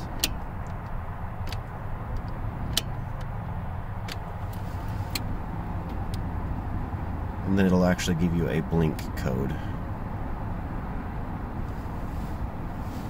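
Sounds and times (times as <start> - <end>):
ignition key clicking: 0.0 - 3.4, 4.0 - 6.3
steady low hum: 0.0 - 13.0.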